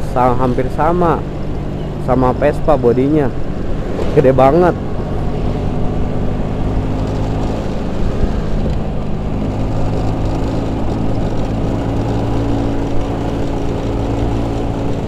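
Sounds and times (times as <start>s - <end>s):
scooter engine cruising: 0.0s - 15.0s
wind rush over microphone: 3.3s - 15.0s.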